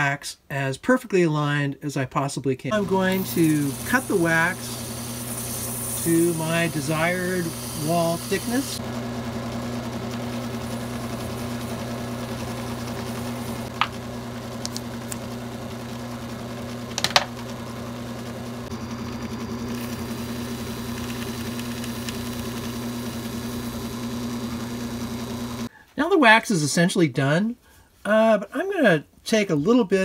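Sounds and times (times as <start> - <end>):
cutting tool turning wax: 2.7 - 25.7
lathe motor humming: 2.7 - 25.7.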